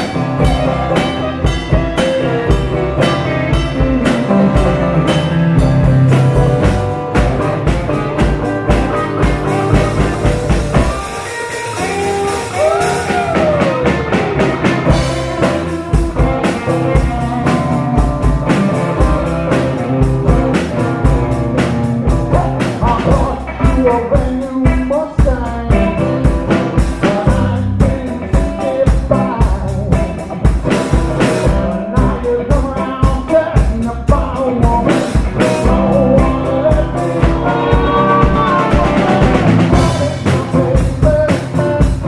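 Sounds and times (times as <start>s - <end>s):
blues band playing: 0.0s - 42.0s
sliding guitar note: 36.9s - 40.2s.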